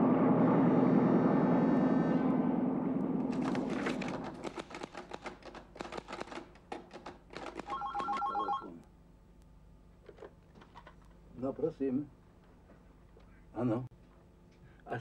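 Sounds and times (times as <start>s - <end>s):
telephone ringing: 7.7s - 8.8s.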